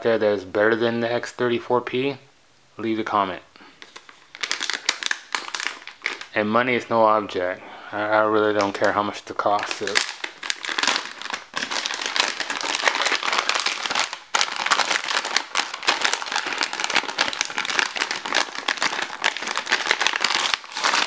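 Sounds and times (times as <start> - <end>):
plastic bag crinkling: 3.8 - 6.4, 9.5 - 21.0.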